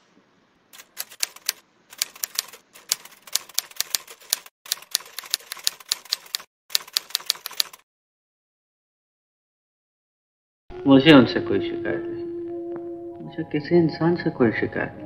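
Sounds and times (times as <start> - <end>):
typewriter keys clacking: 0.8 - 7.8.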